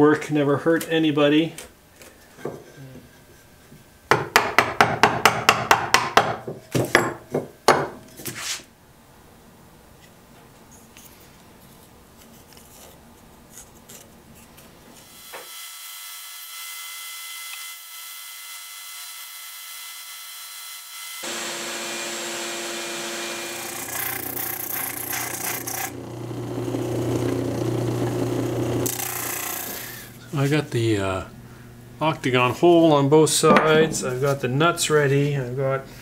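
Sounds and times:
light scraping and handling: 0:10.0 - 0:14.9
band saw cutting wood: 0:19.0 - 0:30.2
disc sander sanding wood: 0:21.2 - 0:30.7.

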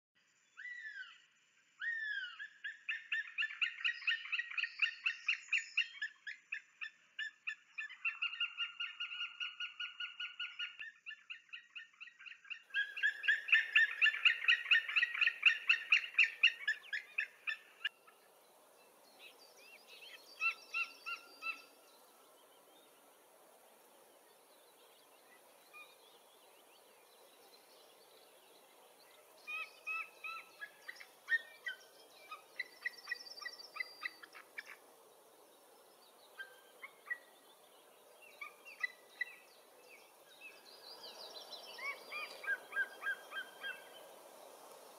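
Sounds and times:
faint outdoor hiss: 0:00.2 - 0:44.9.

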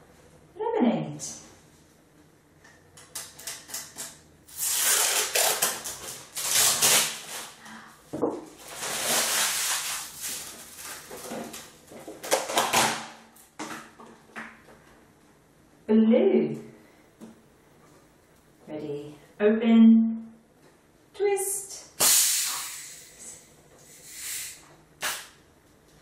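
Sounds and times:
plastic crinkling and rustling: 0:08.5 - 0:12.8.

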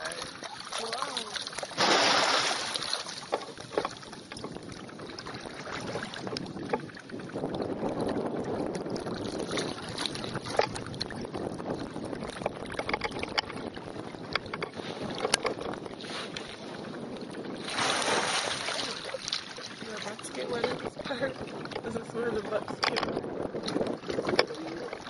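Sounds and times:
water splashing and sloshing: 0:00.0 - 0:25.0
wind buffeting microphone: 0:00.0 - 0:25.0
small knocks: 0:12.4 - 0:13.6.

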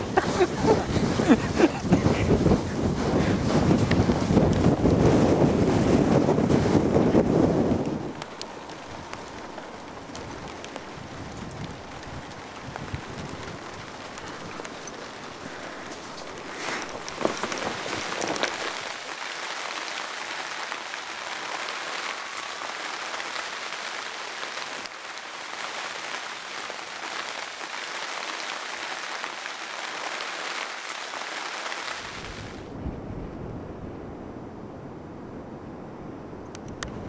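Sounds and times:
wind rumble on microphone: 0:00.0 - 0:19.2, 0:32.0 - 0:37.0
rain on plastic tarp: 0:00.0 - 0:32.7.

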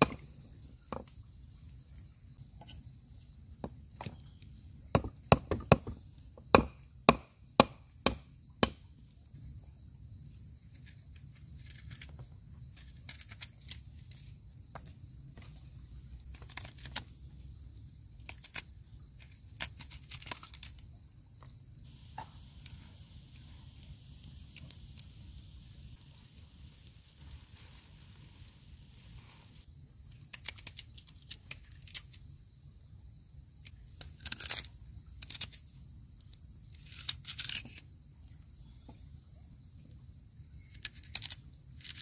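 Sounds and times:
high insect chirring: 0:00.0 - 0:37.8
cleaver chopping on wooden block: 0:05.0 - 0:08.8.

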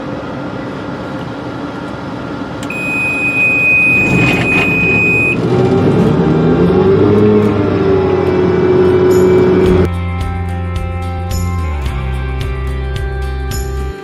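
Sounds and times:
harvester running under load: 0:00.1 - 0:09.9
high-pitched electronic warning beep: 0:02.7 - 0:05.4.

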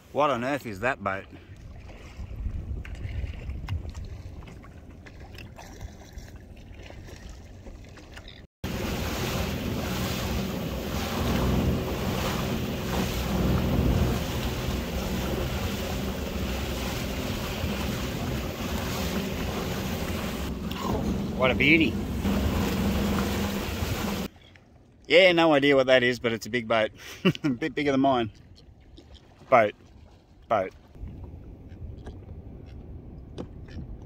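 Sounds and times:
rushing water: 0:01.2 - 0:24.3
wind buffeting microphone: 0:01.7 - 0:04.6, 0:08.7 - 0:24.3, 0:31.0 - 0:34.0
jet ski engine hum: 0:08.6 - 0:24.3.

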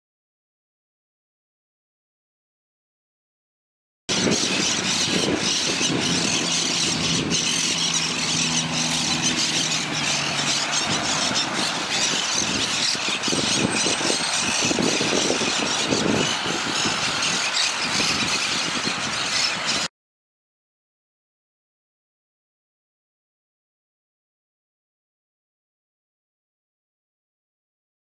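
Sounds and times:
low steady motor hum: 0:04.1 - 0:19.9.

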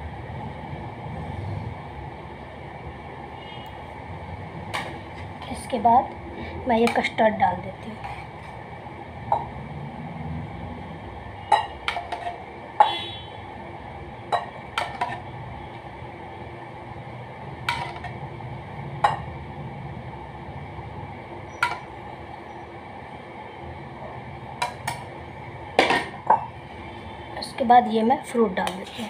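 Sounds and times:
faint steady hum: 0:00.0 - 0:29.0.

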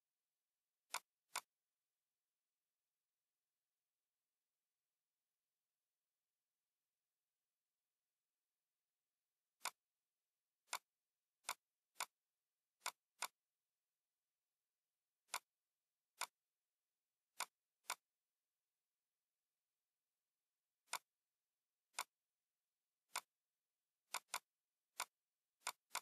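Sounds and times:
computer mouse clicking: 0:00.9 - 0:01.5, 0:09.6 - 0:09.8, 0:10.7 - 0:12.2, 0:12.8 - 0:13.4, 0:15.3 - 0:15.5, 0:16.1 - 0:16.5, 0:17.3 - 0:18.1, 0:20.8 - 0:21.1, 0:21.9 - 0:22.2, 0:23.0 - 0:23.4, 0:24.0 - 0:26.0.

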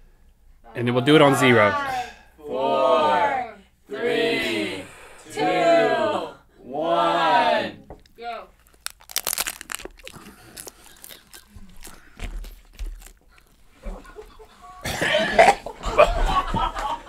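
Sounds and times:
taco shells crunching: 0:08.5 - 0:13.8
person heaving and gagging: 0:09.1 - 0:16.2.

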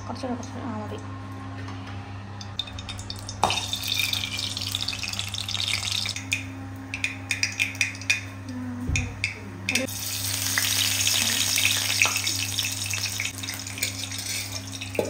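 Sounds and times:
seeds sizzling in hot oil: 0:03.4 - 0:06.2, 0:09.9 - 0:15.0.

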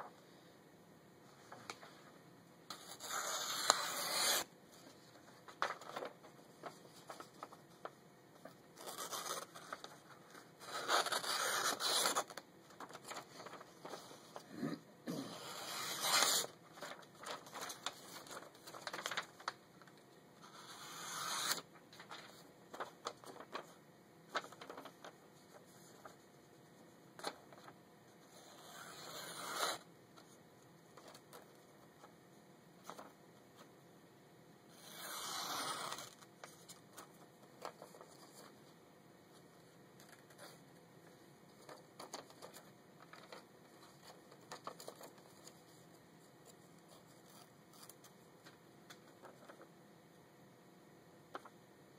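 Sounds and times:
blade slicing paper: 0:02.7 - 0:04.5, 0:10.6 - 0:12.3, 0:15.3 - 0:16.5, 0:20.5 - 0:21.7, 0:34.7 - 0:36.2
paper rustling: 0:02.7 - 0:14.5, 0:15.8 - 0:20.0, 0:21.3 - 0:26.5, 0:27.2 - 0:27.8, 0:32.8 - 0:33.7, 0:35.9 - 0:38.8, 0:41.6 - 0:49.7.

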